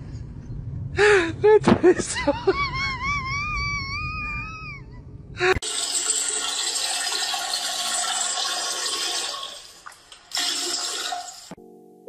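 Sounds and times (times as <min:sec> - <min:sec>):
toilet flushing: 0:05.6 - 0:11.6.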